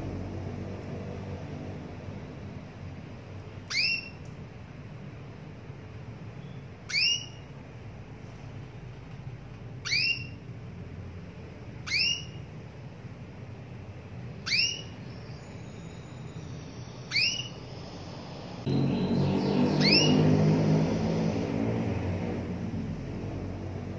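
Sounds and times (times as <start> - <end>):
canary rising call notes: 3.6 - 4.2, 6.4 - 7.5, 9.8 - 10.4, 11.8 - 12.5, 14.4 - 23.8.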